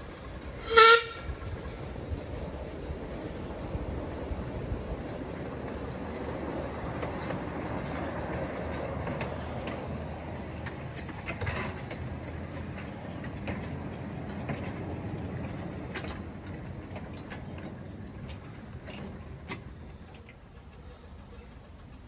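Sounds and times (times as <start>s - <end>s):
miniature steam locomotive passing: 0.0s - 22.0s
wagons rolling past: 0.0s - 22.0s
wheels clicking over rail joints: 0.0s - 22.0s.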